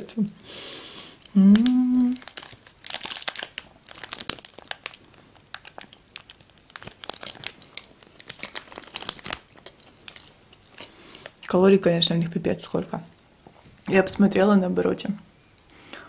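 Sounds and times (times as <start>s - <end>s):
plastic wrapper crinkling: 1.2s - 11.6s.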